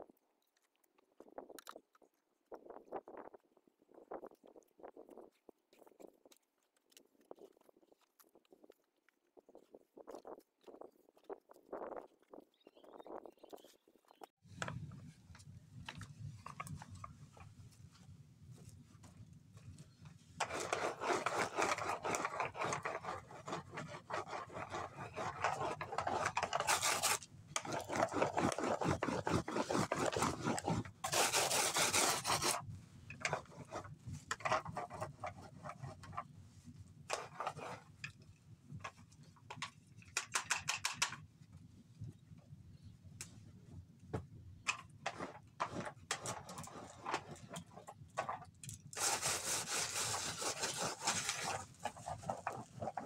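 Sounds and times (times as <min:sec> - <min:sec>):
hand tool scraping hard surface: 0:20.4 - 0:32.6, 0:49.0 - 0:53.0.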